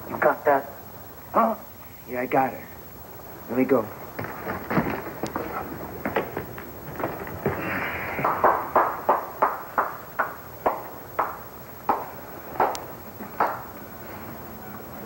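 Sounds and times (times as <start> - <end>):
person clapping slowly: 8.2 - 13.6.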